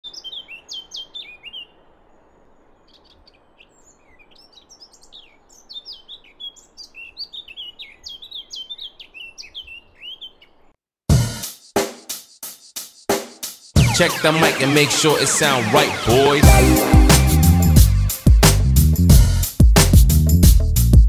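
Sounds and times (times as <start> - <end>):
faint steady hiss: 0.0 - 7.2
songbirds chirping: 0.0 - 10.8.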